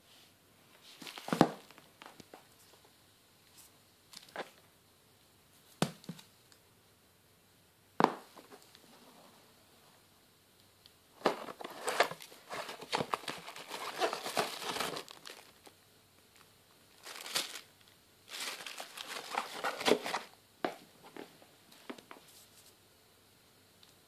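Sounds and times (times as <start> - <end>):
cardboard boxes rustling: 11.2 - 15.7, 17.0 - 17.7, 18.3 - 20.3
plastic bag crinkling: 11.2 - 15.8, 17.0 - 20.3.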